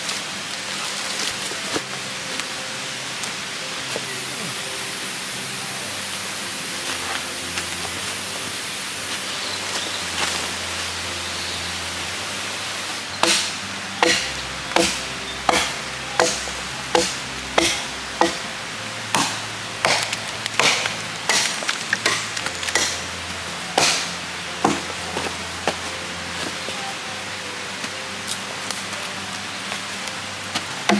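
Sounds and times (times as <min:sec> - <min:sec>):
steady hiss: 0:00.0 - 0:30.9
hoe chopping into ground: 0:13.2 - 0:18.4, 0:19.2 - 0:23.0.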